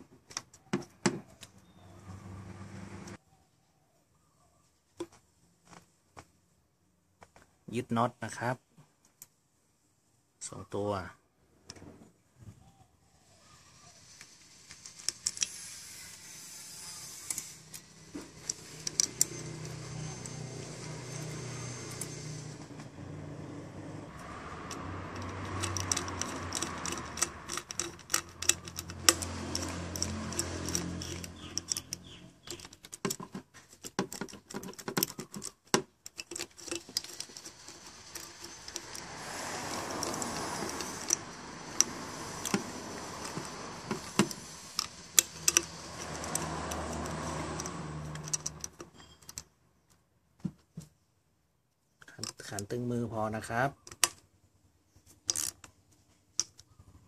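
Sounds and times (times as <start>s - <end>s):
socket ratchet clicking: 16.9s - 22.2s, 24.2s - 49.4s, 55.3s - 55.7s.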